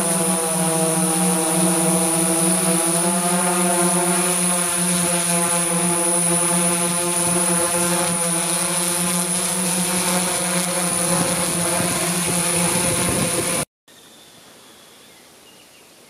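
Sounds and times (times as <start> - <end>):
drone propellers humming: 0.0 - 13.6
high whine: 0.0 - 13.6.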